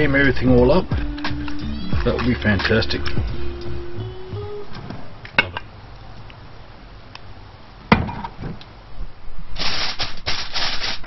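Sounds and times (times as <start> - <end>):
aluminium foil crinkling: 9.6 - 11.0.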